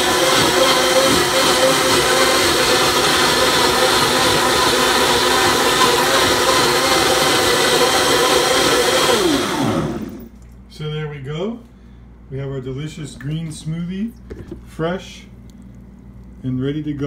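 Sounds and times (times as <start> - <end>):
blender whirring: 0.0 - 10.3.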